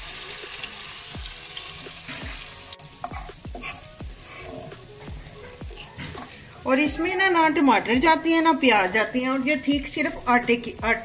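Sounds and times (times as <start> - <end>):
hot oil sizzling in a pan: 0.0 - 11.0.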